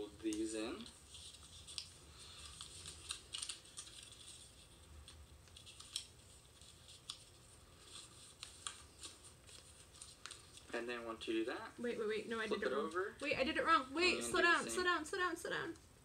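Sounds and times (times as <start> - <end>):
paper being folded and creased: 0.2 - 10.7.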